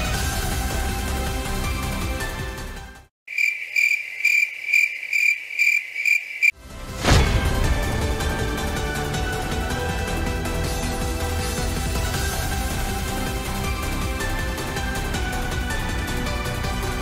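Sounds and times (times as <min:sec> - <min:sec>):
background music: 0:00.0 - 0:03.1, 0:06.6 - 0:17.0
cricket chirping sound effect: 0:03.3 - 0:06.6.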